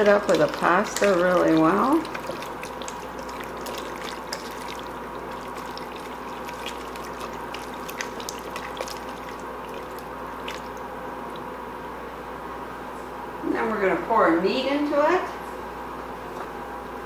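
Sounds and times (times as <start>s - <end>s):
spatula stirring pasta in sauce: 0.0s - 10.8s.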